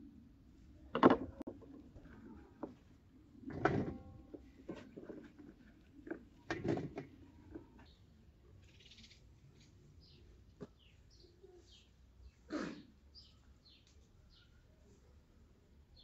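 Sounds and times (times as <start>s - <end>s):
handling knocks and clatters: 0.9s - 7.9s.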